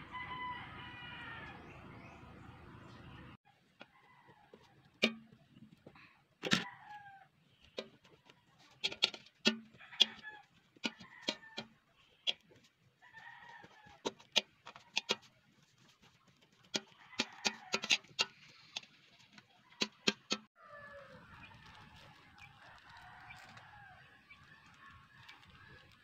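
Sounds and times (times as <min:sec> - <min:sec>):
metal spoon scraping steel pot: 0:16.7 - 0:20.5.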